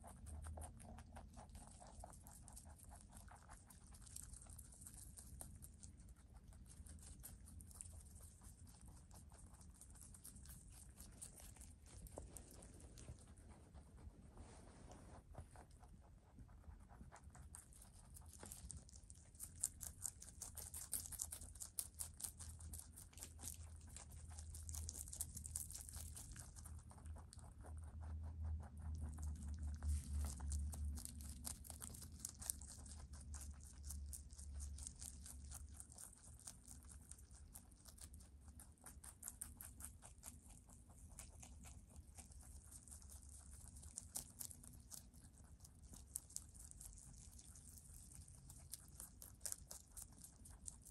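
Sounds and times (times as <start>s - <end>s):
rabbits crunching leafy greens: 0.0s - 50.9s
low rumble: 26.4s - 35.8s.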